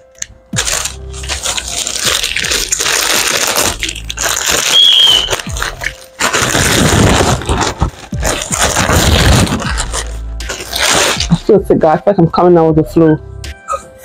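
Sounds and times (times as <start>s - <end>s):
plastic packaging crinkling: 0.1s - 11.5s.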